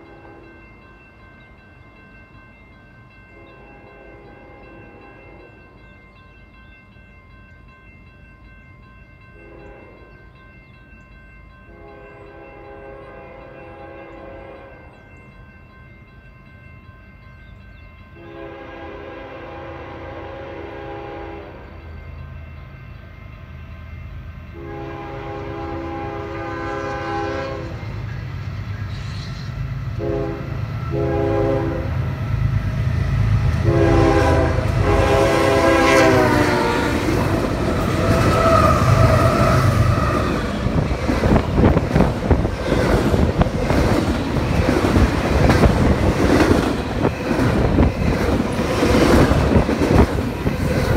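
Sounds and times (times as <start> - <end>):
train horn blasts: 0.0 - 0.6, 9.4 - 10.1, 11.7 - 14.9, 18.2 - 21.8, 24.5 - 27.9, 28.9 - 32.1, 33.5 - 37.1, 37.8 - 40.4
train wheel clatter: 37.0 - 50.9.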